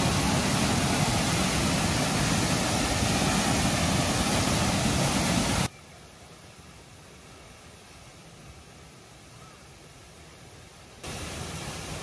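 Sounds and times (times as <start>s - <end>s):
waterfall rushing: 0.0s - 5.7s, 11.0s - 12.0s.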